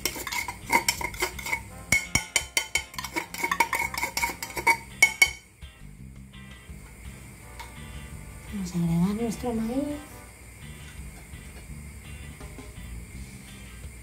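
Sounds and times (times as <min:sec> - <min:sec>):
knife tapping ceramic bowl: 0:00.0 - 0:05.4.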